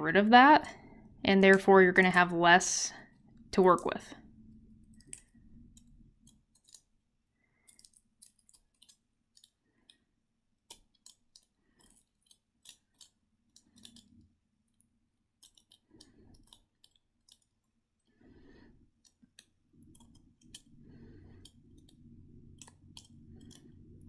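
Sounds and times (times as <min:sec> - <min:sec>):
dry seed skin crackling: 0:04.5 - 0:18.0.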